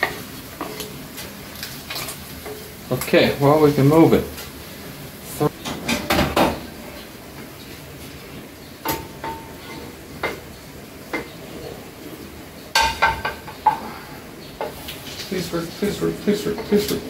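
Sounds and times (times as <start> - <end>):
ceramic plate clinking on pan: 12.7 - 13.8.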